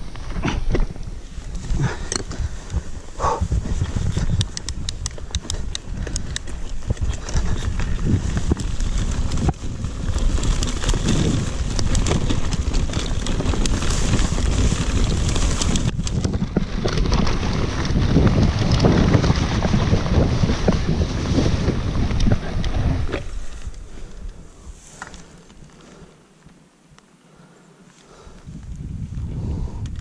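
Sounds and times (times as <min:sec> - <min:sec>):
bike chain and frame rattling: 0:00.0 - 0:26.2
wind rumbling on microphone: 0:00.0 - 0:26.2, 0:28.1 - 0:30.0
tyres rushing through grass: 0:07.0 - 0:26.2.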